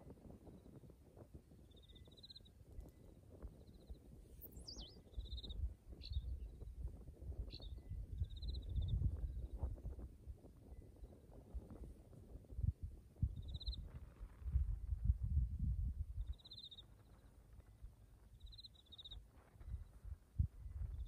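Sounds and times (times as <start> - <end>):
small birds trilling: 3.6 - 6.6
bird wavering whistle: 4.4 - 5.4.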